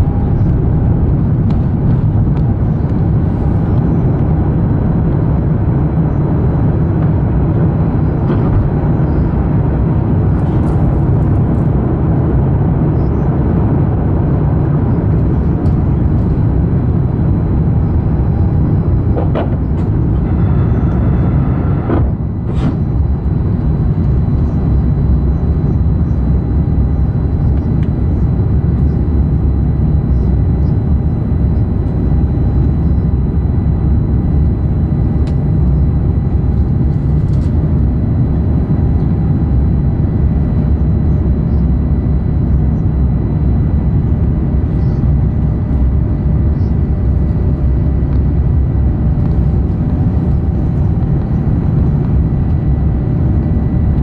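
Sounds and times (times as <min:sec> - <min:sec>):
faint high whine: 0:00.0 - 0:54.0
jet engine low rumble: 0:00.0 - 0:54.0
rushing air: 0:19.6 - 0:23.8.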